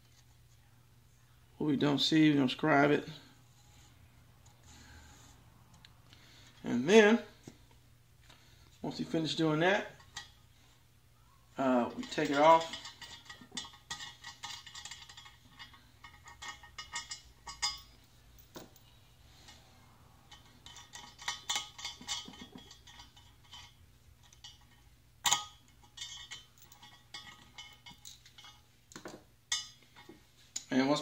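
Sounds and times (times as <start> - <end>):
small metal clinks and clicks: 11.9 - 19.6, 20.3 - 30.7.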